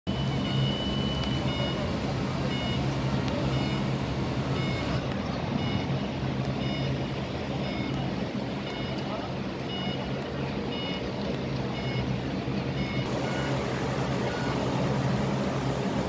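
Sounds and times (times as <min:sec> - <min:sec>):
short high alarm beeps: 0:00.1 - 0:11.1, 0:11.8 - 0:12.2, 0:12.8 - 0:13.6, 0:14.2 - 0:14.6
steady low hum: 0:00.1 - 0:16.0.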